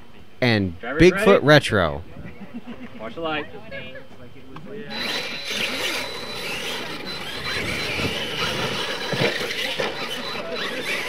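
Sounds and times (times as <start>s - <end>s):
toy truck motors whining: 4.9s - 11.0s
tyres rushing on dirt: 4.9s - 11.0s.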